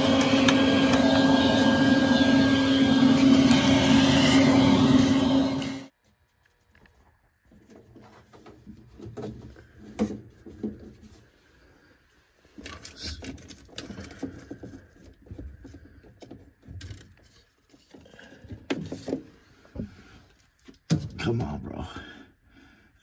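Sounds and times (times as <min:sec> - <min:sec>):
clicks knocks and scrapes of hose: 0:06.0 - 0:11.4, 0:12.5 - 0:21.3.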